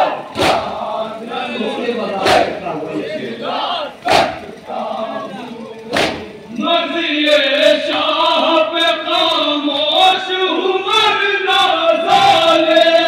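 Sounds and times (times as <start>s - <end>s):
men chanting together: 0.0s - 13.0s
sharp slaps: 0.4s - 0.7s, 4.0s - 4.5s, 5.9s - 6.4s.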